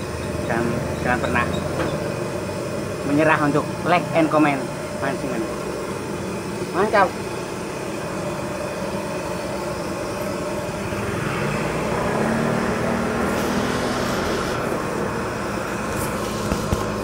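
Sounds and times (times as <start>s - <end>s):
road traffic noise: 0.0s - 17.0s
passing vehicle engine hum: 10.2s - 17.0s.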